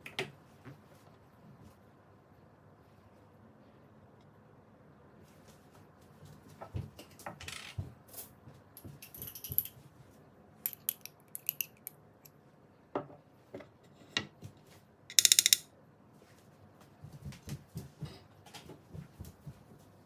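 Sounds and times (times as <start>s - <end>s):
metal spoon clinking: 10.7s - 11.9s.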